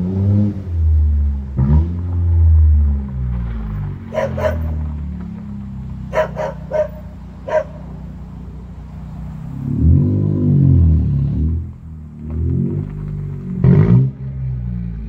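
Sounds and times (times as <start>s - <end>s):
unmuffled car engine revving: 0.0s - 15.0s
dog barking: 4.1s - 4.8s, 6.1s - 8.0s.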